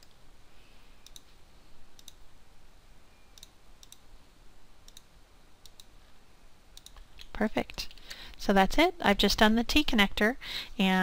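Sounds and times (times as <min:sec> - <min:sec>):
computer mouse clicking: 0:01.0 - 0:01.4, 0:02.0 - 0:02.2, 0:03.4 - 0:04.1, 0:04.8 - 0:06.0, 0:06.8 - 0:08.0.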